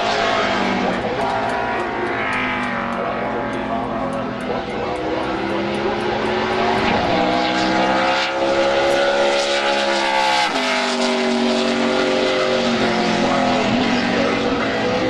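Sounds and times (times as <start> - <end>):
race car engine passing by: 0.0 - 15.0.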